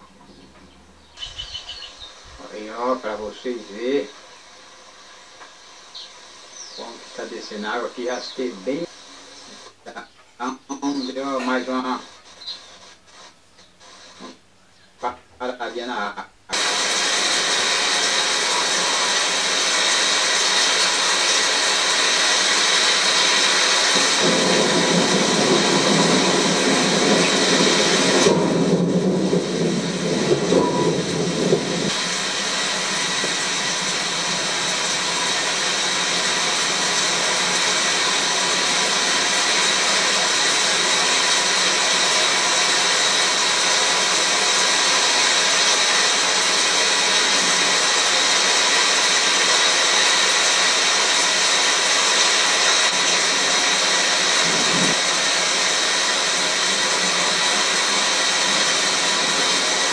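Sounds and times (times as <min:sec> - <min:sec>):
heavy rain hiss: 0:01.1 - 0:14.5, 0:15.5 - 0:59.9
deep rushing noise: 0:24.0 - 0:36.1.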